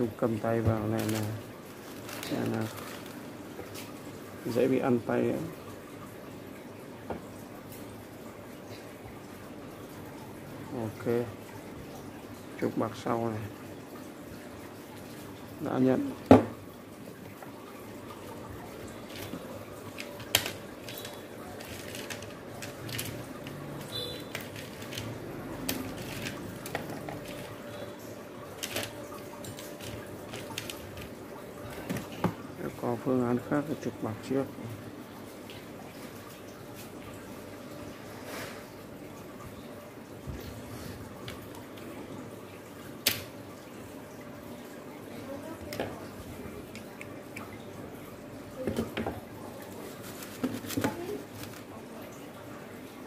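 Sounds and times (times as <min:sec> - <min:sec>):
paper tissue crumpling: 0:00.9 - 0:03.4, 0:49.8 - 0:51.7
hands handling fan parts: 0:19.1 - 0:27.6.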